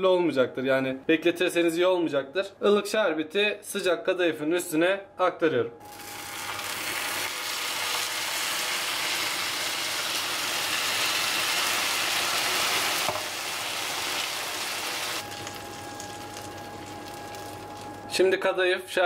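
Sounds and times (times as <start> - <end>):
syrup sizzling on hot pastry: 5.9 - 18.1.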